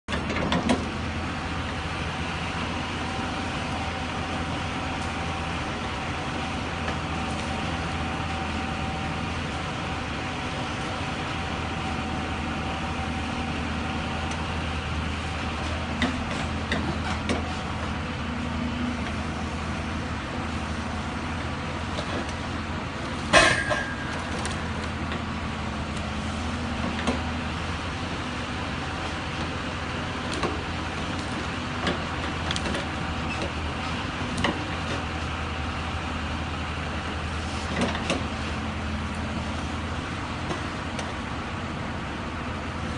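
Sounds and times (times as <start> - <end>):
diesel engine under load: 0.0 - 42.9
high hydraulic whine: 23.0 - 41.8.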